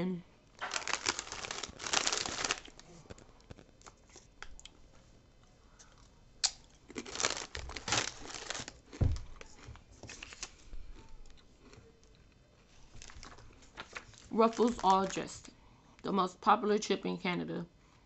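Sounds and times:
foil chip bag crinkling: 0:00.6 - 0:04.6, 0:06.4 - 0:10.6, 0:12.9 - 0:15.5
dull thump: 0:09.0 - 0:09.4.

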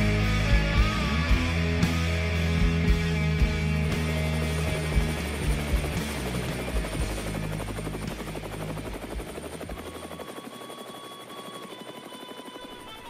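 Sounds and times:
low bass notes: 0:00.0 - 0:08.9
helicopter rotor chopping: 0:02.7 - 0:13.0.

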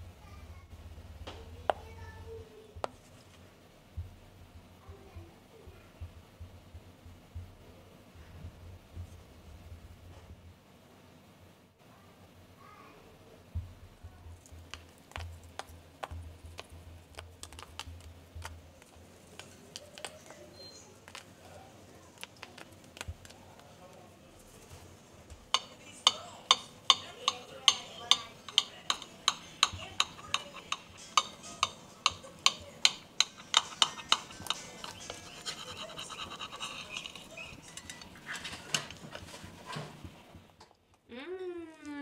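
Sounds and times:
cake server scraping: 0:25.5 - 0:40.0
knife cutting crunchy cake: 0:26.5 - 0:39.7.

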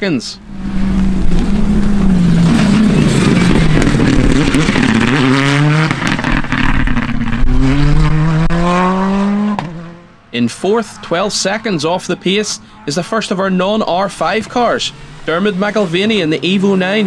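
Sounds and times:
rally car engine revving: 0:00.4 - 0:17.0
gear change: 0:00.5 - 0:10.1.

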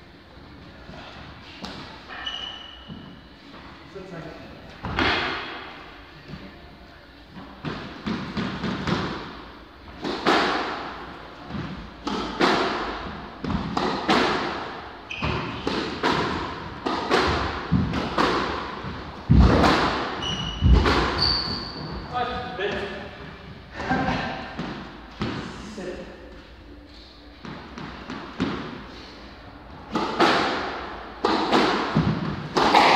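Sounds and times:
short squeak: 0:02.1 - 0:02.9, 0:15.1 - 0:15.6, 0:21.2 - 0:21.9
squash ball hitting rackets and walls: 0:04.8 - 0:06.4, 0:07.3 - 0:23.0, 0:23.8 - 0:25.6, 0:27.4 - 0:29.0, 0:29.8 - 0:32.9.

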